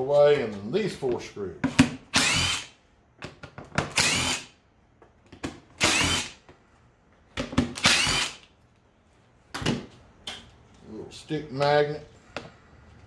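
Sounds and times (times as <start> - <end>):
impact driver running: 2.1 - 2.7, 3.9 - 4.5, 5.8 - 6.4, 7.7 - 8.4.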